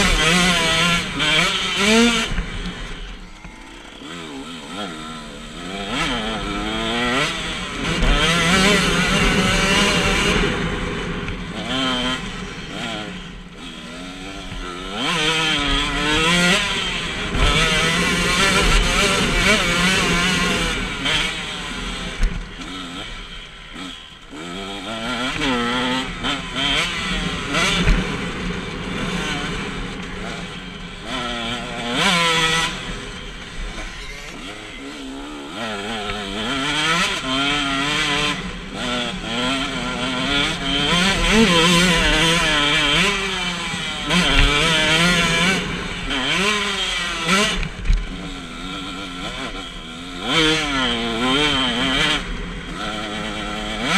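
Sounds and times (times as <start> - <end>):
motocross bike engine revving: 0.0 - 53.9.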